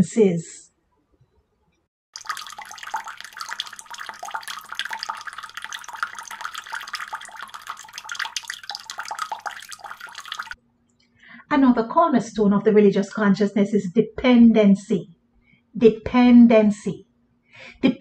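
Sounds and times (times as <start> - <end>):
water pouring and splashing: 2.1 - 10.6.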